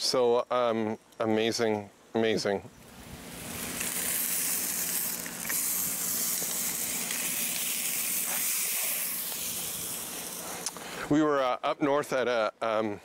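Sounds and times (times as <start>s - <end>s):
meat sizzling on grill: 2.8s - 11.0s.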